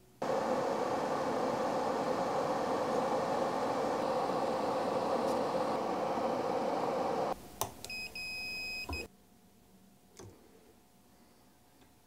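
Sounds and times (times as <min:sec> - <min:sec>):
fume extractor fan running: 0:00.0 - 0:07.4.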